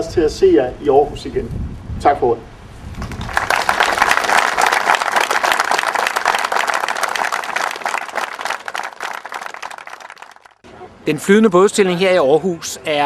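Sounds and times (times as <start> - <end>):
crowd applauding: 3.0 - 10.6.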